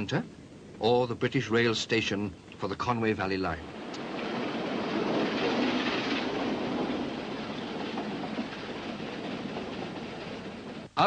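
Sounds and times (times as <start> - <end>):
steam train rumbling: 3.1 - 11.0.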